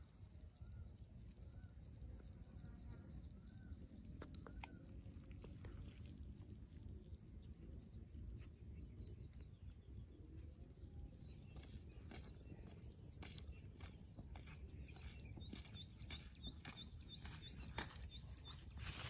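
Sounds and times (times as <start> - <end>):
faint bird chirps: 0.0 - 19.0.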